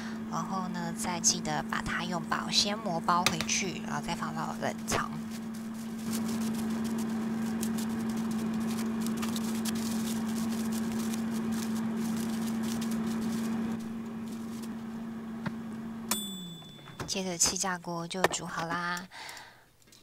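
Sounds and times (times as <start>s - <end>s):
air fryer humming: 0.0s - 19.6s
cling film crinkling: 4.8s - 15.0s.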